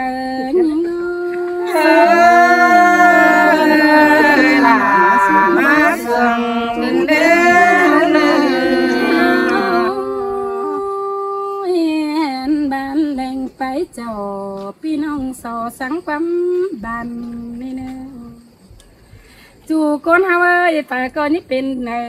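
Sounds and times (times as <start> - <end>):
group singing unaccompanied: 0.8 - 11.6.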